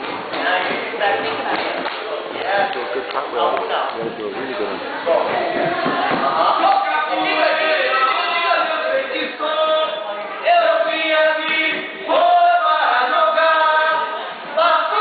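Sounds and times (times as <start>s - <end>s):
group singing in chorus: 5.0s - 8.9s.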